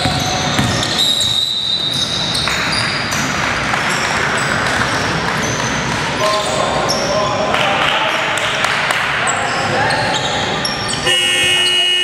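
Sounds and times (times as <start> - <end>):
sneakers squeaking on court: 0.0 - 7.2, 9.3 - 11.1
echoing gym noise: 0.0 - 12.0.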